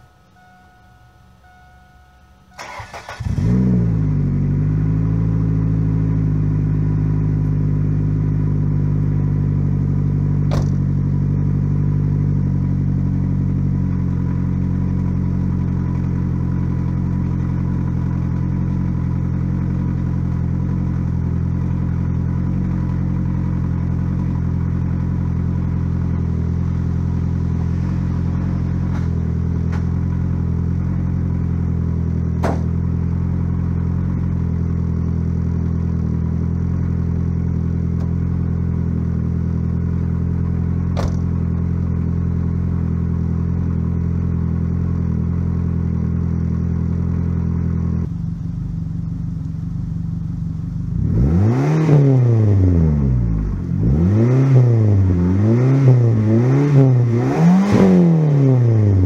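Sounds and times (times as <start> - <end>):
car engine starting and idling: 0.0 - 59.0
car door shutting: 10.4 - 10.9, 32.4 - 32.8, 40.9 - 41.4.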